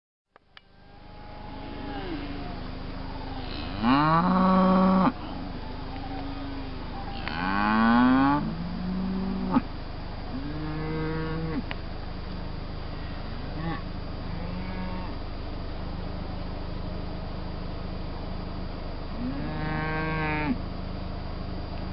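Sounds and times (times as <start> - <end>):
calf mooing: 0.8 - 2.6, 3.2 - 5.2, 7.1 - 9.6, 10.3 - 11.7, 13.6 - 15.2, 19.2 - 20.6.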